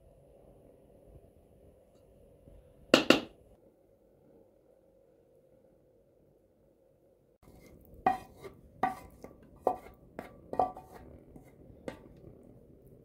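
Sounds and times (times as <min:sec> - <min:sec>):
spatula knocking on metal pot: 0:03.0 - 0:03.3, 0:08.0 - 0:12.1
spatula scraping pot: 0:07.4 - 0:12.5.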